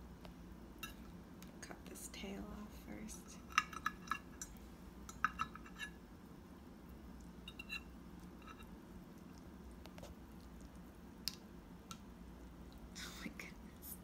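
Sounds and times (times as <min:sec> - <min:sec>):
cutlery clinking on a plate: 0:03.5 - 0:04.5, 0:05.1 - 0:06.0.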